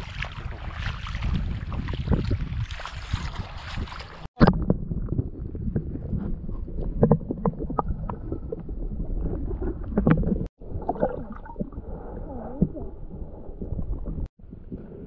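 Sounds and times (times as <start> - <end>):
muffled underwater water movement: 0.0 - 15.0
underwater clicks and knocks: 6.8 - 11.2.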